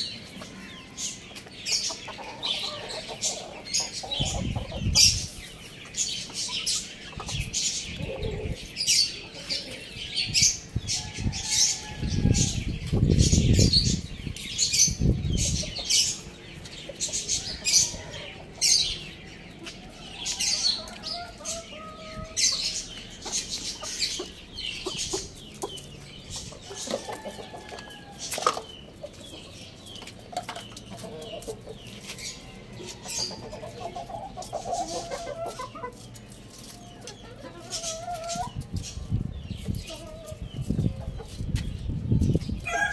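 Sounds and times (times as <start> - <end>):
chickens pecking and scratching: 0.1 - 42.9.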